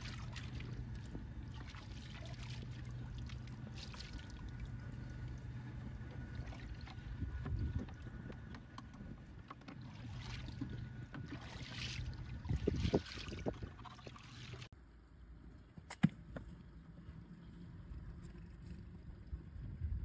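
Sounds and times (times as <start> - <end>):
water sloshing and dripping: 0.0 - 14.7
splash into bucket of water: 11.3 - 14.7.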